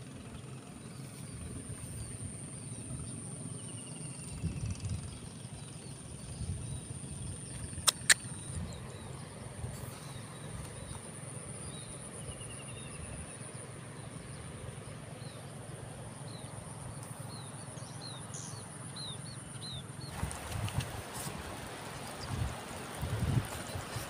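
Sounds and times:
birds calling: 0.0 - 24.0
bird chirping: 0.8 - 20.2
wind rumble on microphone: 4.0 - 13.5, 19.0 - 24.0.

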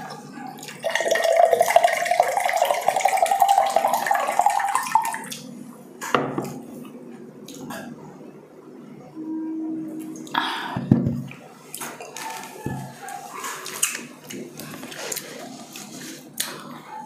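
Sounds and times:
juice pouring into glass mug: 0.7 - 5.4.

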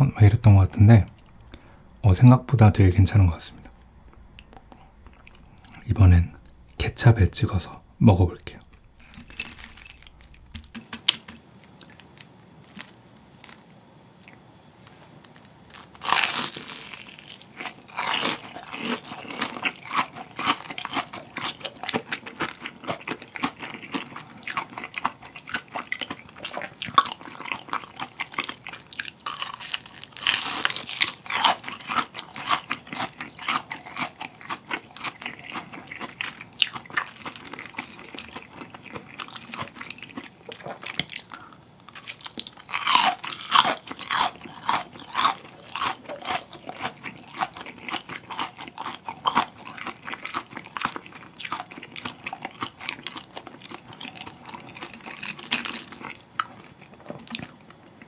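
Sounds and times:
crunchy chewing: 3.2 - 6.8, 8.4 - 58.0
crunching bites of fried shrimp: 8.8 - 14.4, 15.3 - 57.6.

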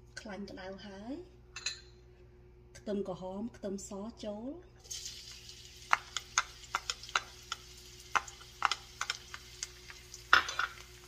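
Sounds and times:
aromatics sizzling in hot oil: 4.8 - 11.0.

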